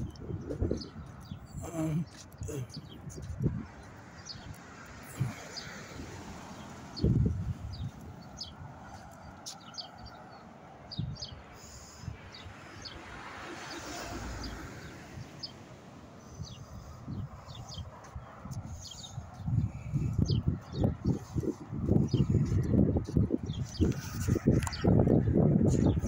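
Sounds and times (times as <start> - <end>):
small birds chirping: 0.0 - 26.0
street background noise: 0.0 - 26.0
vehicle passing: 3.4 - 10.9, 12.0 - 20.0.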